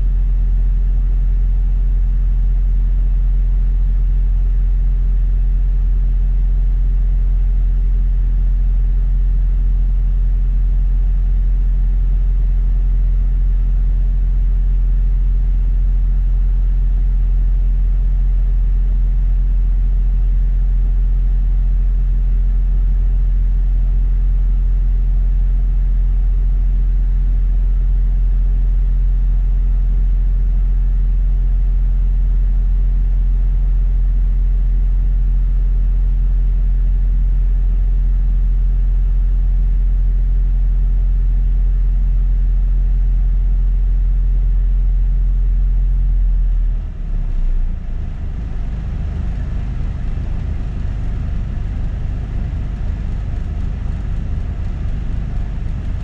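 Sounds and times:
bus engine rumbling: 47.9 - 53.4.

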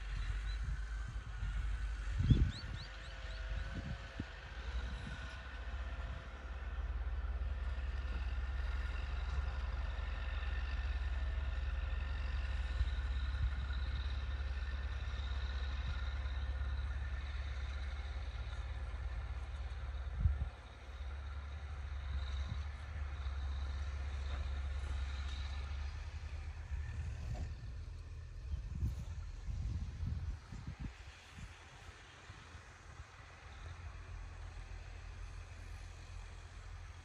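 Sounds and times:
distant tractor engines droning: 0.0 - 37.0
wind on microphone: 0.7 - 2.9, 28.5 - 31.6.

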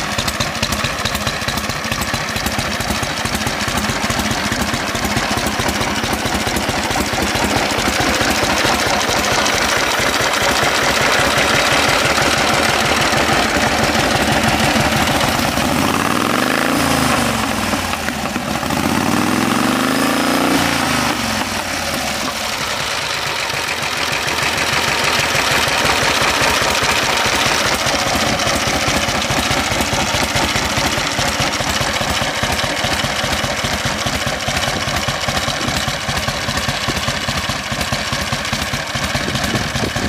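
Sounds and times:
motorcycle engine idling: 0.0 - 40.0.

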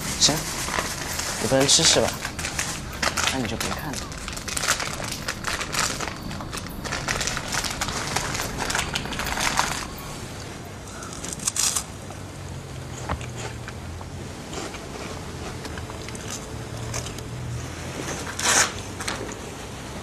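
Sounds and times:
plastic bags crinkling: 0.0 - 11.9.

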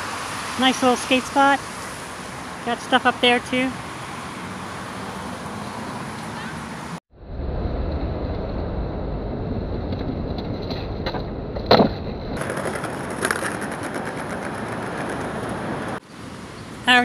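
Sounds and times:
street traffic passing: 0.0 - 17.0
skateboard rolling on concrete: 9.7 - 16.3
skateboard clack: 10.4 - 16.0.

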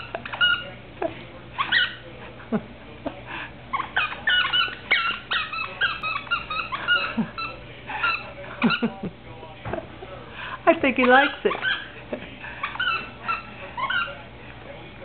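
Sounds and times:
dog whining and yipping: 3.8 - 7.6.

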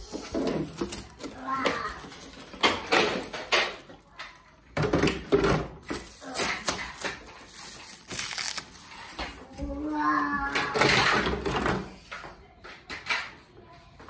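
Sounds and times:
plastic wrapping crinkling: 5.8 - 9.4.

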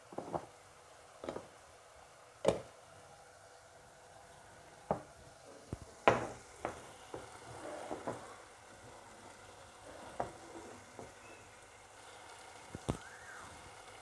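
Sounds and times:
faint frying sizzle: 0.0 - 14.0
utensils knocking and tapping: 6.0 - 7.3.

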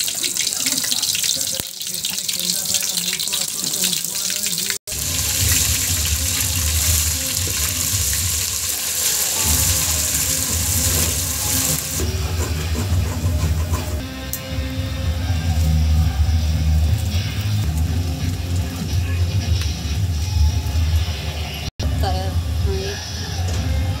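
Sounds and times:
paste sizzling in hot oil: 0.0 - 14.0
metal spoon stirring in pot: 6.6 - 14.0.

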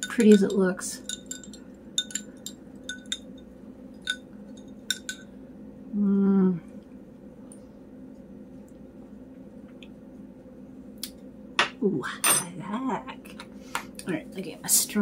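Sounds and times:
spoon clinking against glass mug: 0.0 - 5.3.

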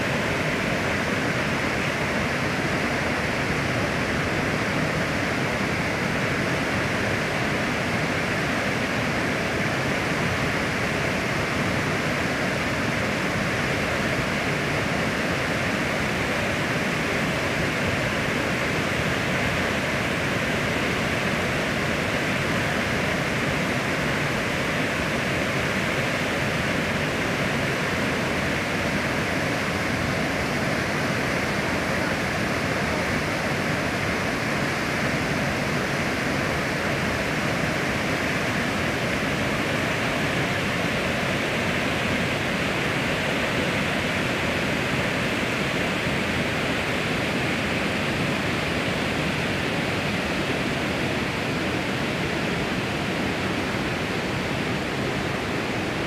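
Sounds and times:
water rushing over a fall: 0.0 - 56.0.

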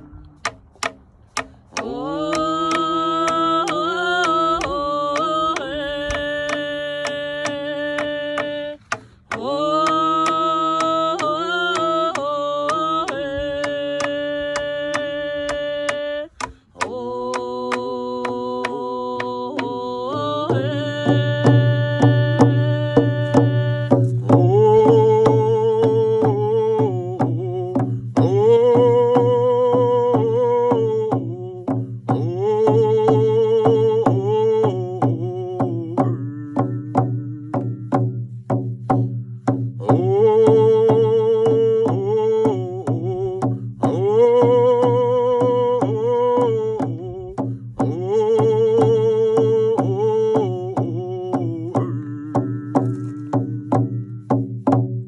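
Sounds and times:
frame drums beating: 0.0 - 55.0
person singing with vibrato: 0.0 - 55.0.

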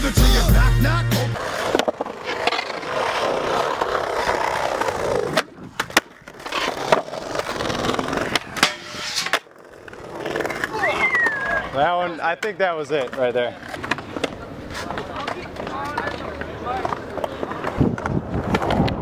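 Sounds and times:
hip-hop music with heavy bass: 0.0 - 1.4
skateboard wheels rolling on concrete: 0.0 - 19.0
skateboard clacks: 1.4 - 11.6, 12.2 - 19.0.

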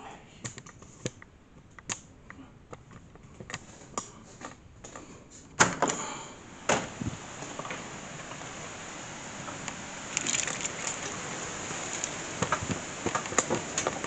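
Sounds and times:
phone being handled: 10.1 - 11.2.

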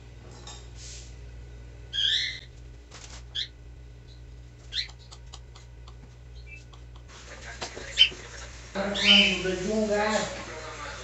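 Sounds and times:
low steady hum: 0.0 - 11.0
canary chirping: 1.9 - 2.5, 3.3 - 5.7, 6.3 - 7.1, 7.9 - 9.6.

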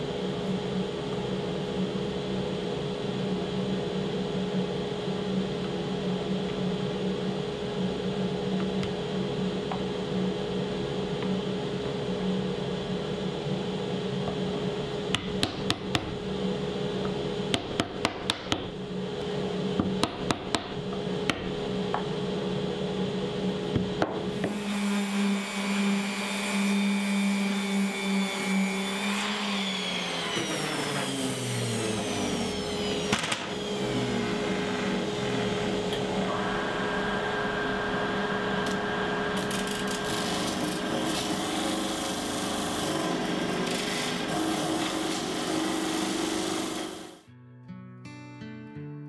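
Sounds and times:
power tool motors running: 24.3 - 47.2
motor winding down: 27.6 - 47.2.

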